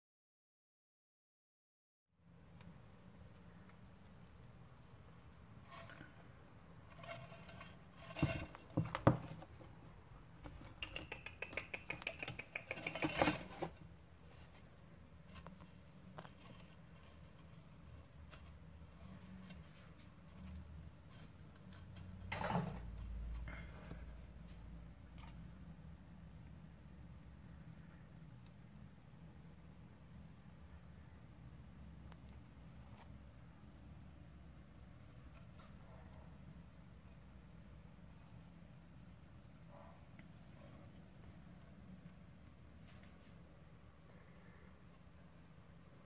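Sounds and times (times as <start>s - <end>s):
quick run of clicks: 10.7s - 13.3s.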